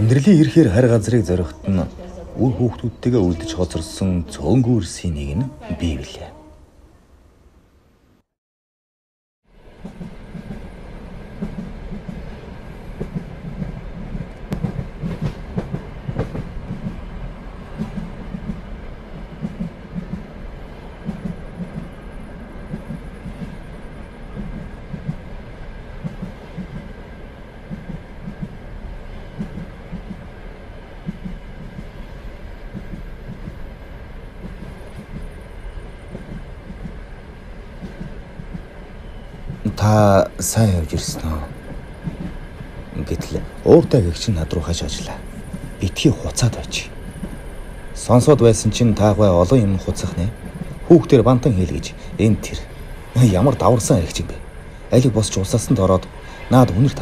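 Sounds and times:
train wheels clattering on rails: 0:09.8 - 0:57.0.

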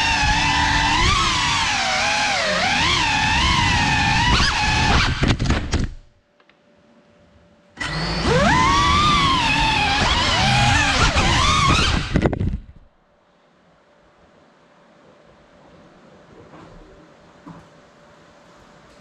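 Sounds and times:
drone motors and propellers whining: 0:00.0 - 0:05.3, 0:07.8 - 0:12.6.

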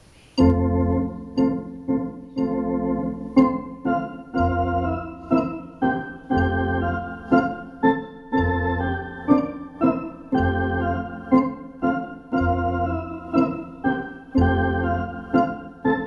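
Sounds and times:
low pedal bass notes: 0:00.4 - 0:03.7, 0:04.3 - 0:05.6
electronic organ chords: 0:00.4 - 0:16.0.

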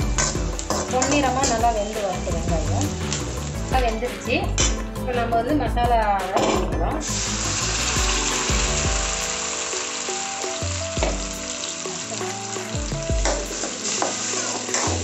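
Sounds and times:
ladle stirring: 0:00.0 - 0:01.6
paste sizzling in hot oil: 0:00.0 - 0:04.8, 0:07.0 - 0:15.0.

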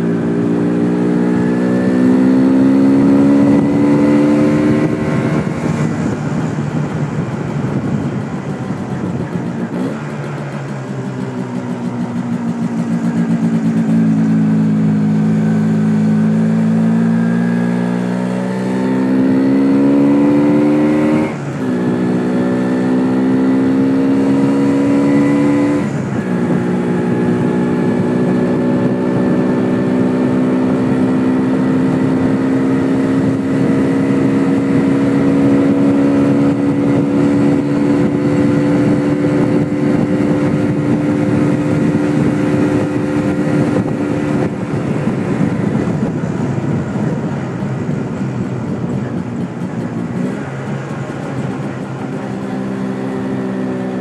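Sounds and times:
wind noise on microphone: 0:00.0 - 0:10.8, 0:11.5 - 0:54.0
motorcycle engine accelerating: 0:00.0 - 0:54.0.

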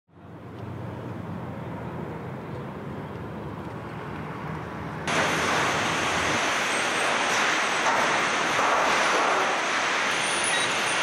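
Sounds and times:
hissing factory machinery: 0:05.0 - 0:11.0.

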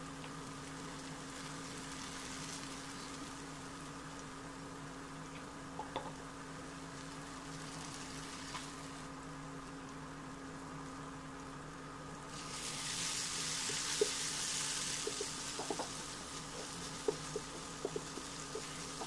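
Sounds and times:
vegetables sizzling in oil: 0:00.0 - 0:19.0.

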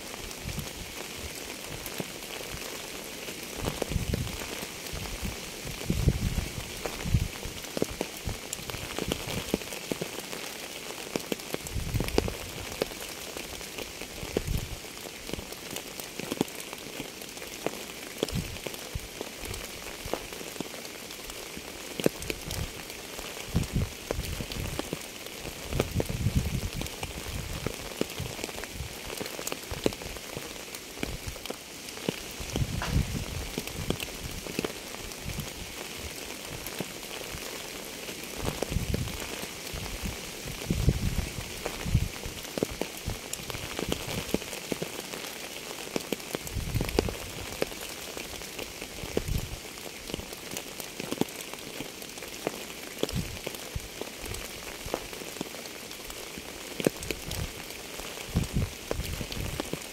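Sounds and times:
raindrops ticking on a surface: 0:00.0 - 0:59.9
steady rain: 0:00.0 - 0:59.9
low thumps: 0:32.6 - 0:33.4.

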